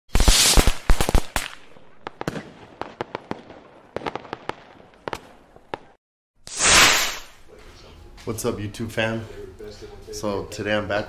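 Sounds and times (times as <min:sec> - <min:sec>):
firework-like crackles: 0:04.1 - 0:07.4.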